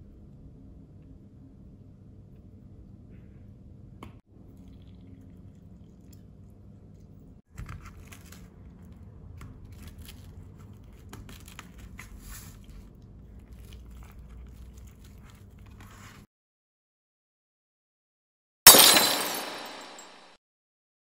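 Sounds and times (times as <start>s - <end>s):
tortilla wrap rustling and crinkling: 7.5s - 16.3s.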